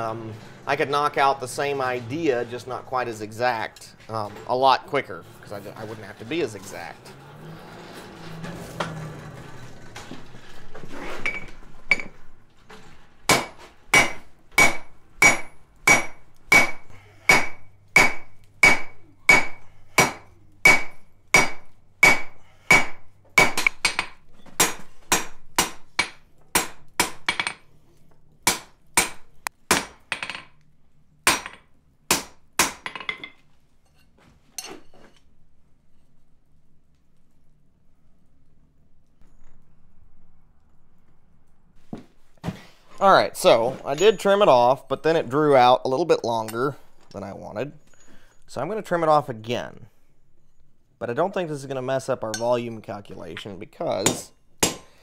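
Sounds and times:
hammer striking steel on anvil: 0:13.3 - 0:27.6, 0:28.5 - 0:30.5, 0:31.3 - 0:33.3, 0:54.0 - 0:55.0.

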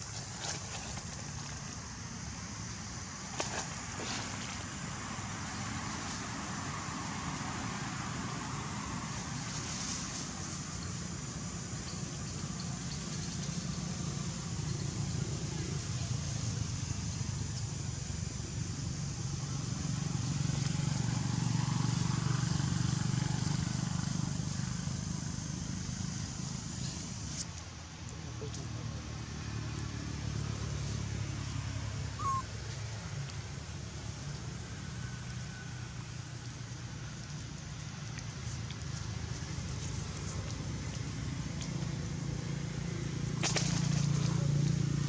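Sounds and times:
low engine hum: 0:00.0 - 0:45.0
brief high squeak: 0:32.2 - 0:32.5.

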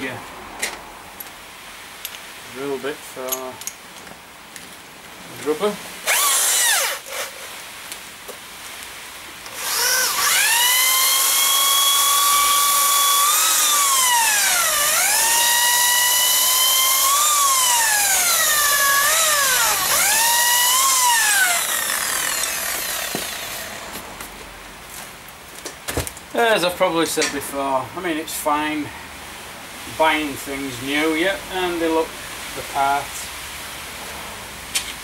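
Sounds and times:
electric drill whining: 0:06.1 - 0:07.3, 0:09.5 - 0:24.0.

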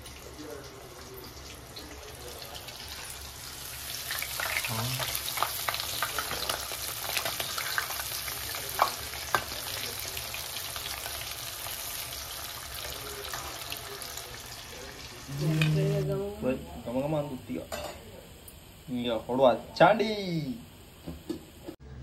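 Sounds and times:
fish frying in hot oil: 0:00.0 - 0:15.4.

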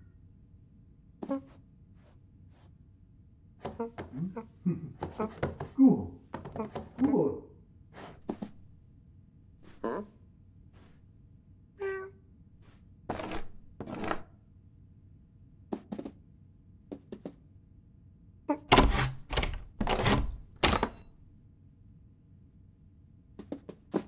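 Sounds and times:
cat scratching wooden door: 0:05.0 - 0:05.8, 0:13.1 - 0:14.2, 0:18.7 - 0:21.0.

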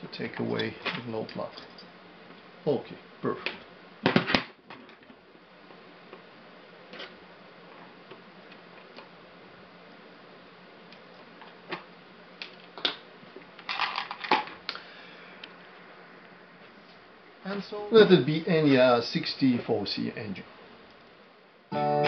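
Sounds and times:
metal parts clattering: 0:13.7 - 0:14.5.

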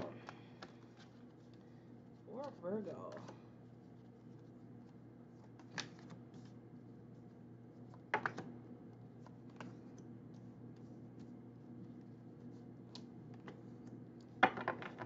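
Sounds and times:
low steady hum: 0:00.0 - 0:15.0
cards clicking and snapping: 0:05.4 - 0:06.2.

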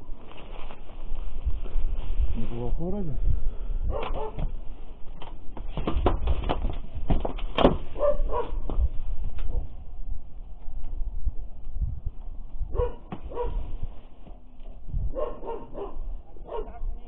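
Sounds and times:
wind rumble on microphone: 0:00.0 - 0:17.0
dog barking: 0:03.9 - 0:04.5, 0:08.0 - 0:08.6, 0:12.7 - 0:13.7, 0:15.1 - 0:16.9.

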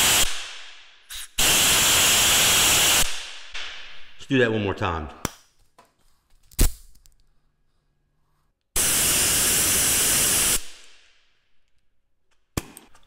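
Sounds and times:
air blow gun hiss: 0:00.0 - 0:00.4, 0:01.1 - 0:03.2, 0:08.8 - 0:10.8.

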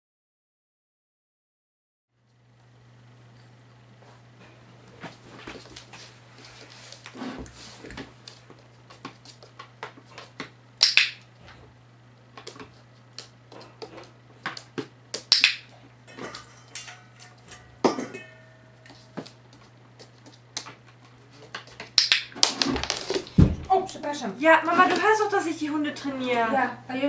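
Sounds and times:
loud crisp clicks: 0:10.8 - 0:11.3, 0:15.3 - 0:15.7, 0:22.0 - 0:22.3.

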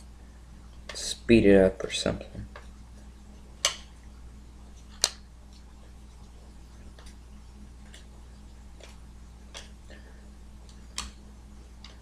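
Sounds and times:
steady low hum: 0:00.0 - 0:12.0
trading cards snapping: 0:03.6 - 0:03.9.

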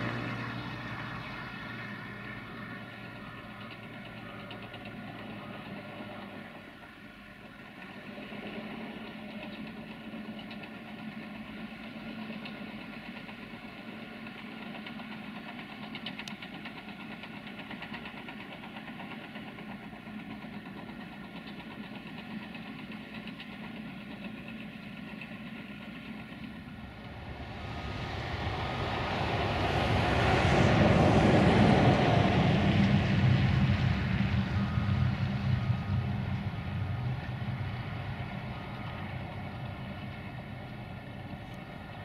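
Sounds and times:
distant bulldozer diesel engine: 0:00.0 - 0:42.0
loud rushing noise: 0:26.7 - 0:40.0.

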